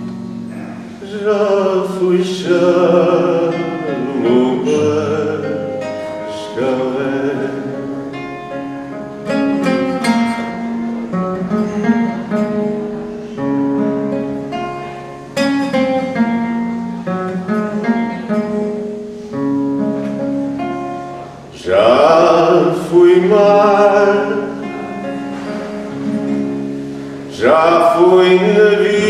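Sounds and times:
classical guitar chords: 0.0s - 29.0s.

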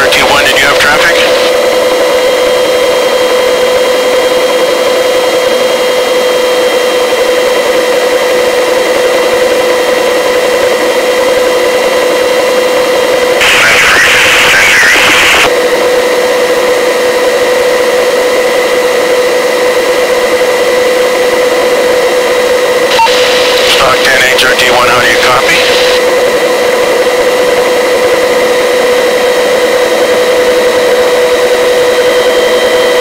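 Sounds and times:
radio static burst: 0.0s - 1.6s, 13.4s - 15.5s, 22.9s - 26.1s
helicopter turbine and rotor drone: 0.0s - 33.0s.

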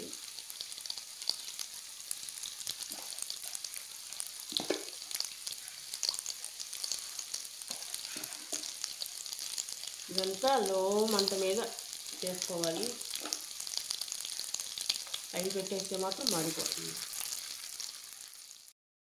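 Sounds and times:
oil sizzling in a pan: 0.0s - 18.8s
oil popping: 4.4s - 5.1s.

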